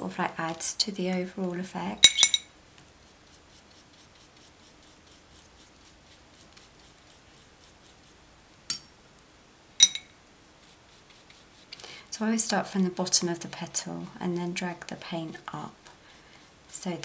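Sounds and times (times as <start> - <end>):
brush strokes on paper: 2.7 - 8.5, 10.3 - 11.8
brush clinking against tableware: 9.8 - 10.1.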